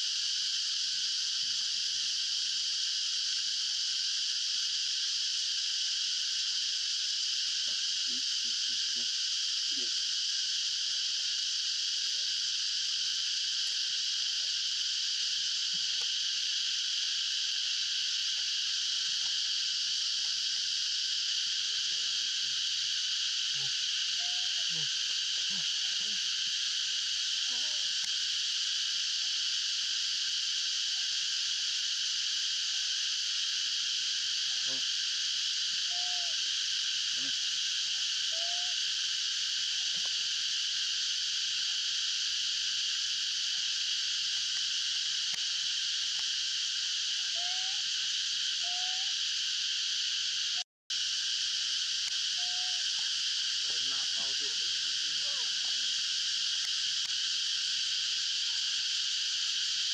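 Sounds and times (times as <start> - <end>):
chorus of wild animals calling: 23.5 - 26.3, 35.9 - 36.4, 38.3 - 38.8, 47.3 - 47.9, 48.6 - 49.1, 52.4 - 52.9.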